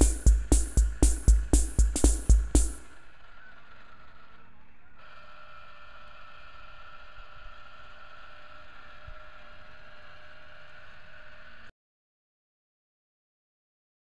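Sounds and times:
antenna rotator motor whining: 2.8s - 11.7s.

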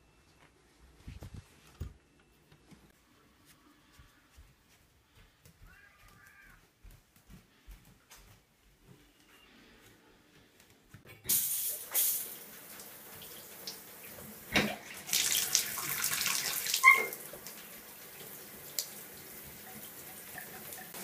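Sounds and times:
water running into bathtub: 11.3s - 21.0s
faucet handle squeak: 16.8s - 17.2s.

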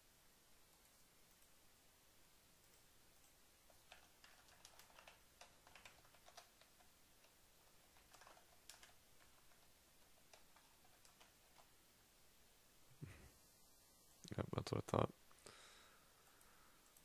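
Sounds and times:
keyboard typing: 0.7s - 1.6s, 2.6s - 11.8s.

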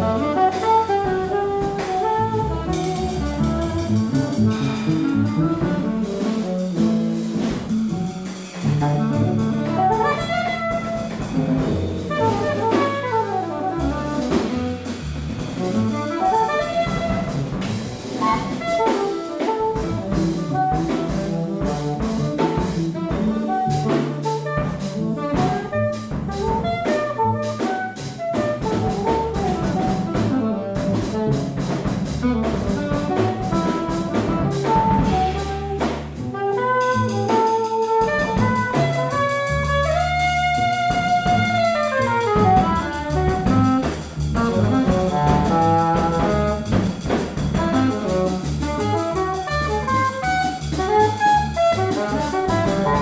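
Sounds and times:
double bass: 0.0s - 53.0s
drum kit with cymbals: 0.0s - 53.0s.

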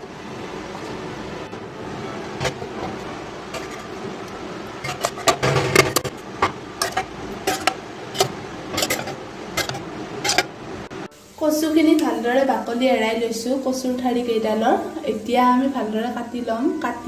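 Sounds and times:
spoon scraping metal pot: 2.4s - 4.0s, 4.8s - 6.1s, 6.8s - 10.5s.

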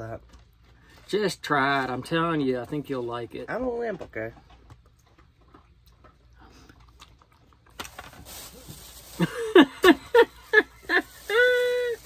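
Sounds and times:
faint chewing: 0.0s - 3.0s, 3.8s - 8.7s
plastic bag crinkling: 7.5s - 12.0s.

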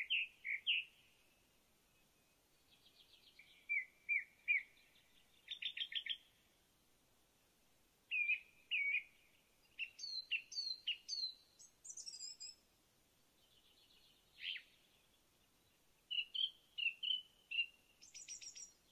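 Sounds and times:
birds chirping: 13.4s - 18.9s.

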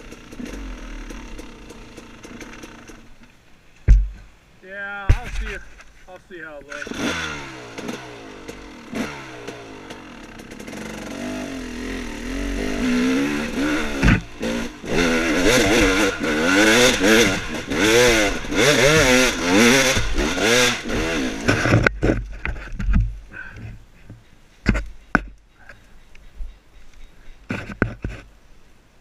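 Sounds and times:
dirt bike engine revving: 0.0s - 3.1s, 6.7s - 22.2s
sharp knocks: 5.0s - 5.6s.

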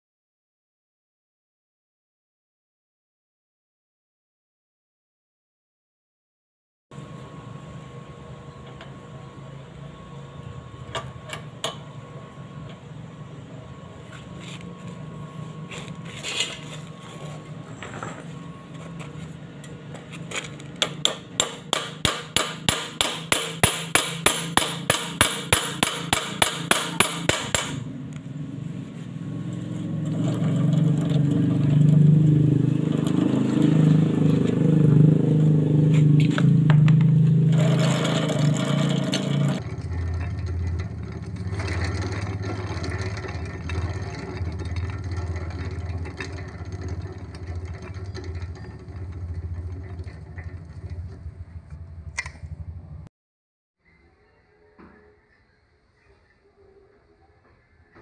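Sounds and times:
small engine running: 12.0s - 53.0s
hammer striking steel sprocket: 20.8s - 27.9s.

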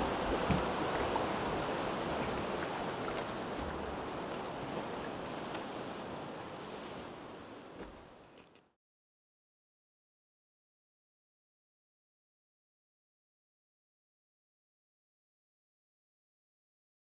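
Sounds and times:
sea waves: 0.0s - 8.5s
wind: 0.0s - 8.8s.

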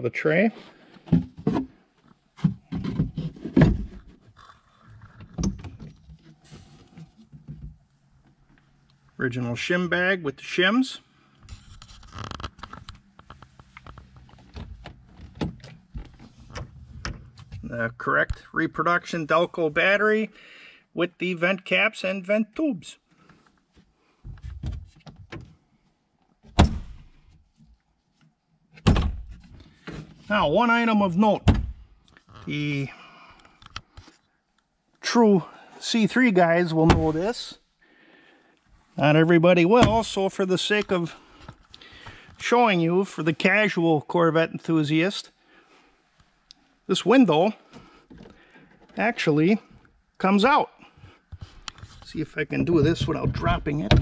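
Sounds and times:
knocks and thumps: 1.0s - 1.8s, 2.4s - 4.2s, 52.5s - 54.0s
rubbing and scraping: 2.4s - 5.4s, 11.5s - 17.6s, 51.4s - 54.0s.

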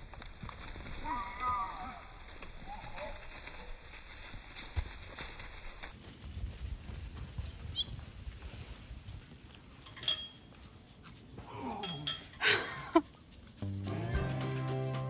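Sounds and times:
music: 13.6s - 15.0s.

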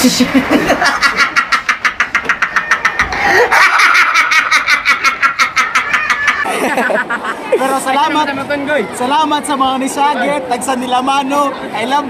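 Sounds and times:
man laughing hard: 0.2s - 7.7s.

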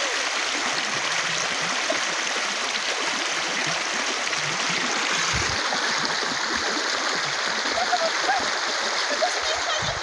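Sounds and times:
floodwater rushing over rocks: 0.0s - 10.0s.

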